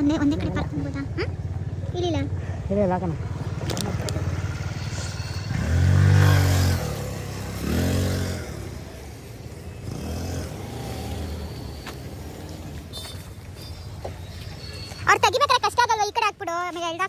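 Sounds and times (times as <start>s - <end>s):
low engine hum: 0.0s - 17.0s
engine revving: 3.0s - 12.9s.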